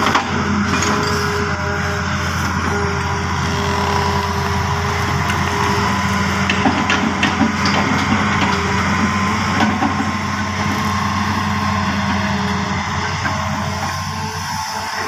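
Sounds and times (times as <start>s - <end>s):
excavator diesel engine: 0.0s - 15.0s.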